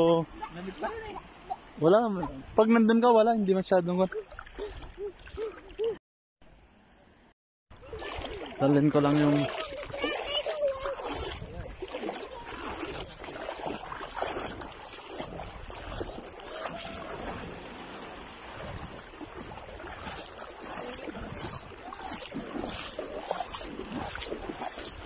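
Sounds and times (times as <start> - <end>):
water splashing while wading: 3.6 - 6.0, 7.7 - 25.0
wind on microphone: 10.9 - 25.0.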